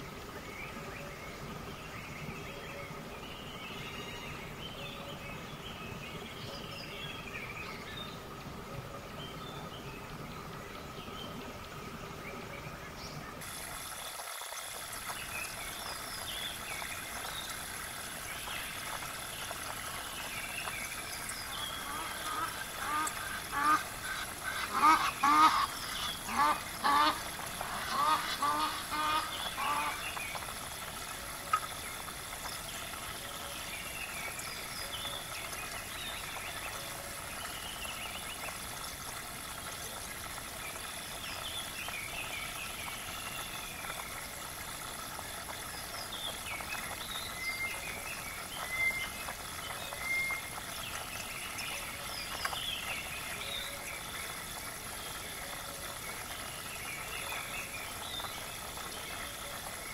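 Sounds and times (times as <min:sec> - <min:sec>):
steady background hiss: 0:00.0 - 0:59.9.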